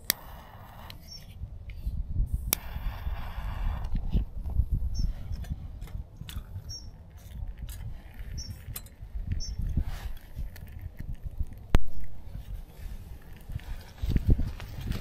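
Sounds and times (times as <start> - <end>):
fire crackling in wood stove: 0.0 - 15.0
low rumble of stove fire: 0.0 - 15.0
small bird chirping: 1.0 - 1.9, 4.8 - 5.5, 6.4 - 9.8.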